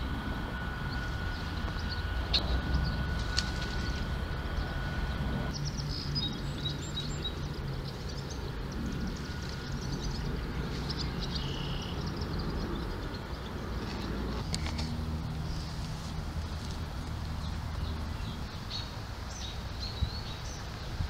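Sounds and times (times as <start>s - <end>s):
distant city rumble: 0.0s - 21.0s
small birds chirping: 0.6s - 21.0s.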